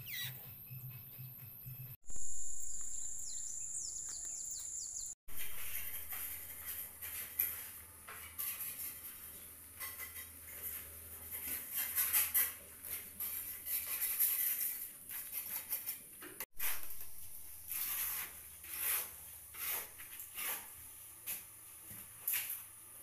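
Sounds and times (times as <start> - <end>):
scraping and clinking of mortar work: 5.3 - 22.6.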